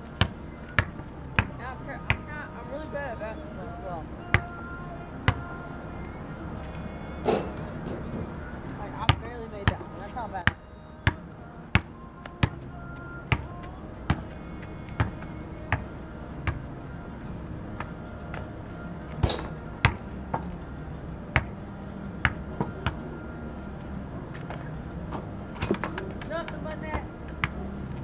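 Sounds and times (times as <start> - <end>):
faint steady hum: 0.0 - 28.0
basketball bouncing on court: 0.2 - 2.3, 9.0 - 12.7, 13.3 - 14.3, 14.9 - 16.7, 21.4 - 21.6, 26.0 - 27.7.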